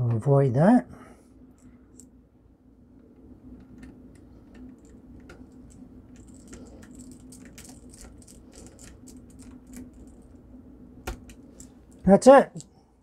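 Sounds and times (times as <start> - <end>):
screwdriver clicking and scraping: 4.5 - 10.2.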